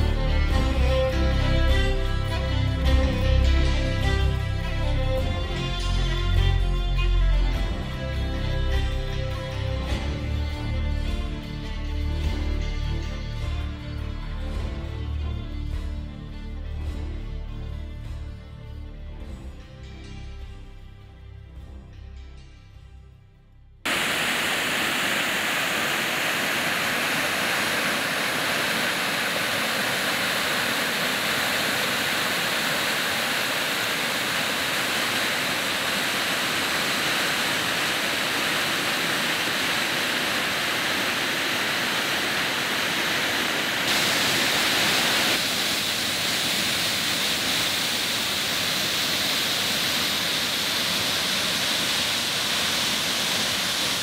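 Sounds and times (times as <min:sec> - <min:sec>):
water rushing over rocks: 0:23.9 - 0:54.0.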